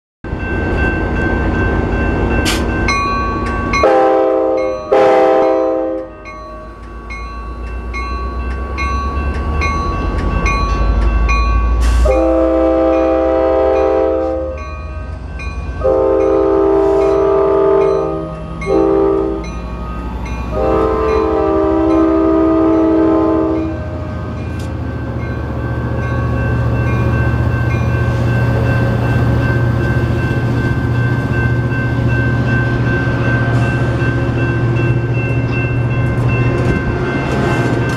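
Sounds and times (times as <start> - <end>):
train horn blasts: 3.8 - 6.2, 11.8 - 14.6, 15.8 - 19.5, 20.5 - 24.2.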